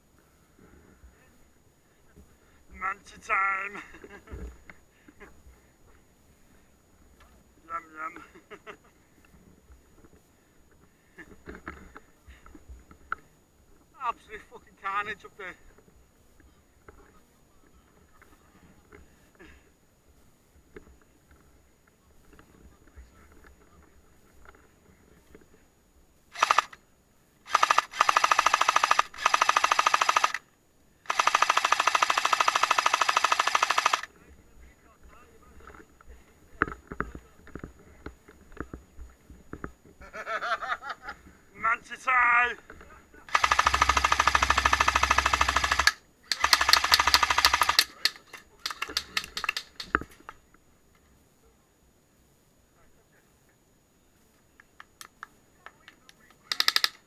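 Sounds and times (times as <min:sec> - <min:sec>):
airsoft machine gun firing bursts: 0:26.3 - 0:26.8, 0:27.5 - 0:30.4, 0:31.1 - 0:34.1, 0:43.3 - 0:49.9, 0:56.5 - 0:57.0.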